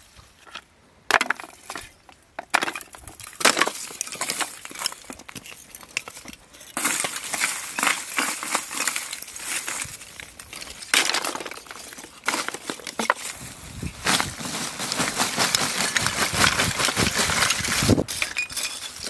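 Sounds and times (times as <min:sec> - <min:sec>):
charcoal clinking in wooden crate: 0:06.8 - 0:10.0, 0:10.6 - 0:13.4, 0:14.1 - 0:19.0.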